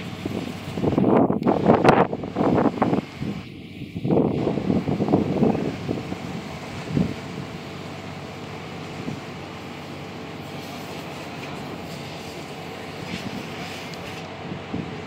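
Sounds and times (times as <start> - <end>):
wind gust on microphone: 0.0 - 7.6, 12.9 - 15.0
boat engine droning: 0.0 - 15.0.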